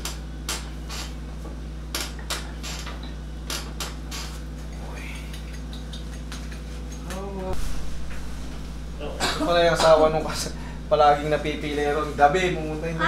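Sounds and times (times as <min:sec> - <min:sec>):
steady low hum: 0:00.0 - 0:13.0
back clicks and creaks: 0:01.9 - 0:04.5.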